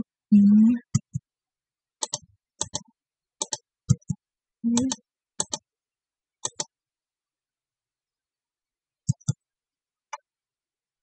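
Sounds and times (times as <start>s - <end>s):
mouse buttons clicking: 2.0s - 4.2s, 4.8s - 5.7s, 6.4s - 6.8s, 9.1s - 9.4s.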